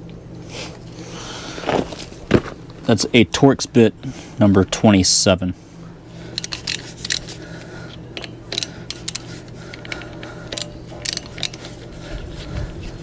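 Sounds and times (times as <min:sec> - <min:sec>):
hand ratchet clicking: 0:06.3 - 0:07.4, 0:08.2 - 0:11.7.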